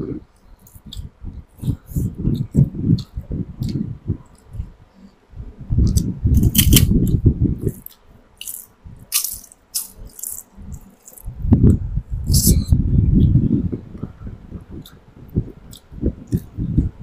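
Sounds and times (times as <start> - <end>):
muffled chewing: 0.4 - 5.1, 5.8 - 11.4
crisp wafers crunching: 6.4 - 6.9, 7.7 - 11.3.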